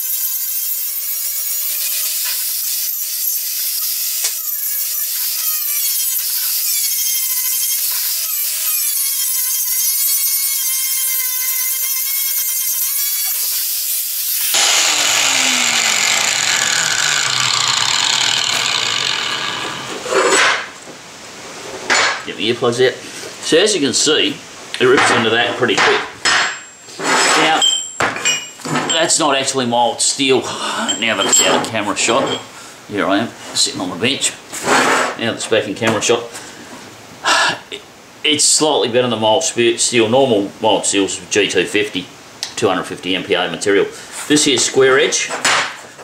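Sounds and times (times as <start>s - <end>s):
angle grinder grinding steel: 0.0s - 20.6s.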